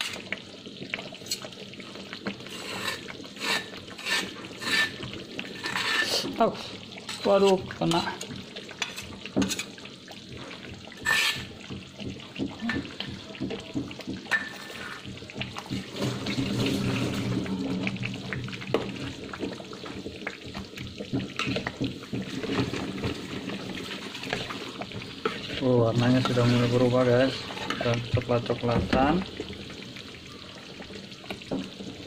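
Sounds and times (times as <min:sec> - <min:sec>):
thick sauce bubbling: 0:00.0 - 0:32.0
spoon scraping a pan: 0:01.2 - 0:01.5, 0:02.3 - 0:06.4, 0:07.0 - 0:09.9, 0:10.9 - 0:13.2, 0:14.2 - 0:17.3, 0:21.0 - 0:28.1.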